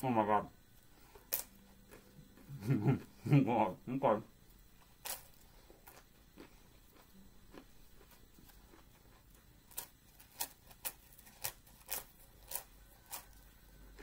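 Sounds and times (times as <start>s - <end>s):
crisp crunching of chewing: 5.0s - 14.0s.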